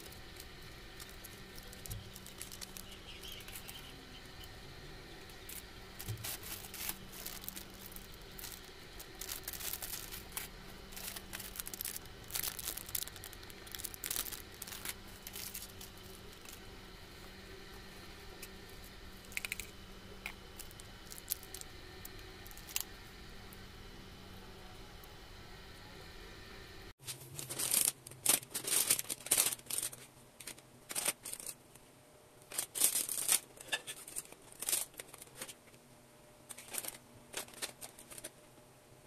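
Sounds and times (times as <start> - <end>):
plastic packaging crinkling: 0.0 - 23.0, 27.0 - 31.6, 32.5 - 35.6, 36.5 - 38.4.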